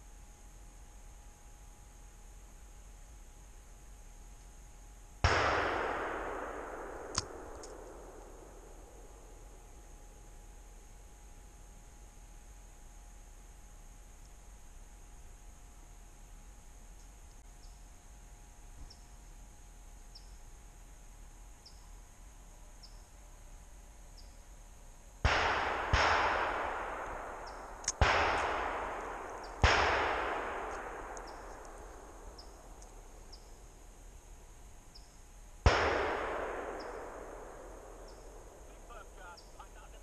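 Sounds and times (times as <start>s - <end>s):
gunshots echoing: 5.2s - 9.7s, 25.3s - 33.4s, 35.6s - 40.0s.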